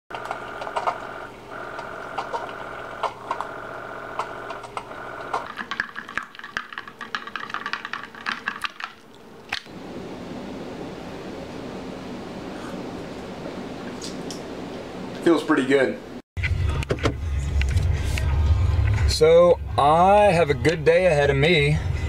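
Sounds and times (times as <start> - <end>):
coffee maker sputtering and gurgling: 0.1 - 9.0
coffee maker pump humming: 0.1 - 15.3.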